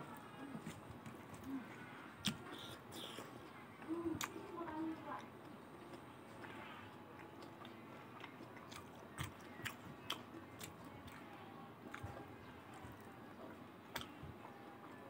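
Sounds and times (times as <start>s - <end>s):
chewing food: 0.1s - 15.0s
wet mouth clicks: 2.2s - 3.3s.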